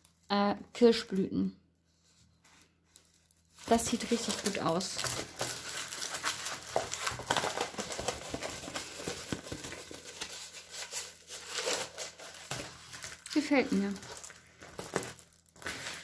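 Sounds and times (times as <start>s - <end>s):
plastic film crinkling: 2.0s - 16.0s.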